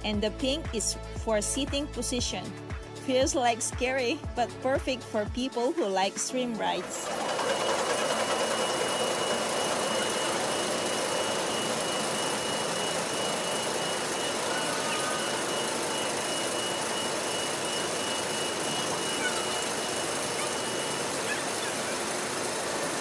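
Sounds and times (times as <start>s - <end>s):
roller coaster climbing lift hill: 6.8s - 23.0s
faint high whine: 7.0s - 23.0s.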